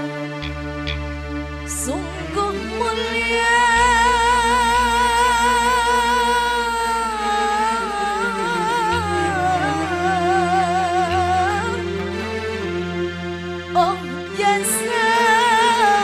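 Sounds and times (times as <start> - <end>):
keyboard chords and bass: 0.0 - 16.0
woman singing with vibrato: 1.7 - 12.0, 13.8 - 16.0.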